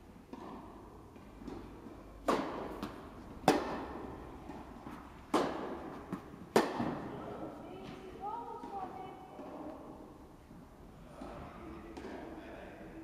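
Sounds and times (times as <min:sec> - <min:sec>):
tennis ball struck by racket: 0:00.3 - 0:07.2
tennis ball bouncing on court: 0:00.3 - 0:10.0.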